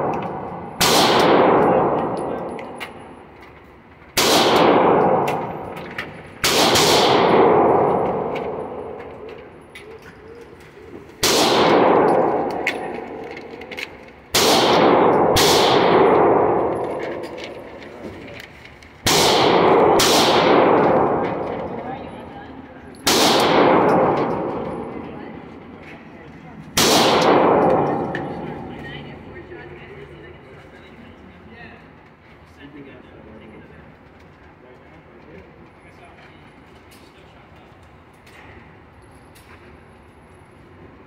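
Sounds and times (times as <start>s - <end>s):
gunshots echoing indoors: 0.0s - 3.4s, 4.1s - 10.0s, 11.1s - 18.4s, 19.0s - 29.8s.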